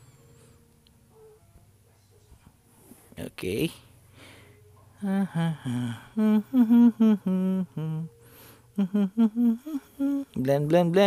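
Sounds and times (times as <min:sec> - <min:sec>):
person humming: 0:04.9 - 0:10.8.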